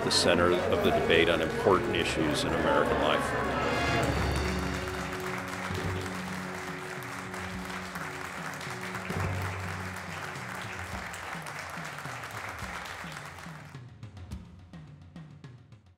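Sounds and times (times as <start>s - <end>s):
audience applause: 0.0s - 13.8s
background music with low notes: 0.0s - 15.7s.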